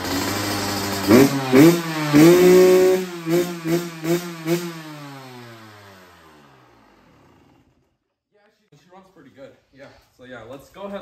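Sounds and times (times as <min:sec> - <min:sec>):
motorcycle engine revving: 0:00.0 - 0:08.0.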